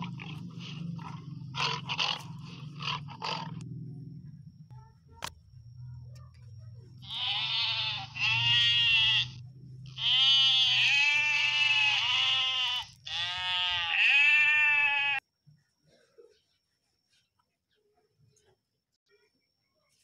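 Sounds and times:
goat bleating: 0:07.0 - 0:15.2.

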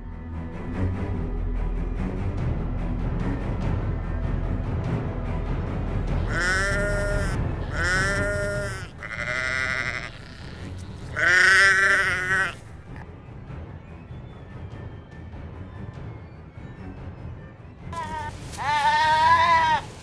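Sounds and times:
low music bed: 0:00.0 - 0:20.0
sheep bleating: 0:06.2 - 0:12.6, 0:18.0 - 0:20.0.

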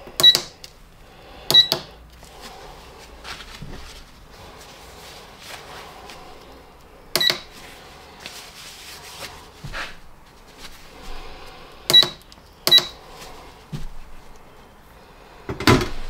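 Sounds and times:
soft knocks and handling: 0:02.2 - 0:06.3, 0:13.2 - 0:14.5.

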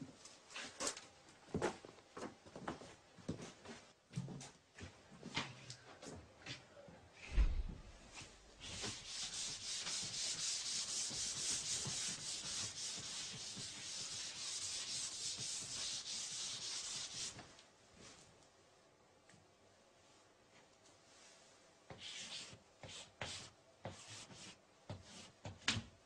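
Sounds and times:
chalk wiped off chalkboard: 0:08.6 - 0:17.4.

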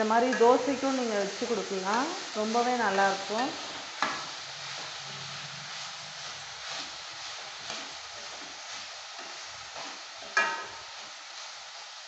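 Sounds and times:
vegetables sizzling in a pan: 0:00.0 - 0:12.0
spatula scraping a pan: 0:00.2 - 0:12.0
spatula clanging on pan: 0:04.0 - 0:04.3, 0:09.2 - 0:10.9.

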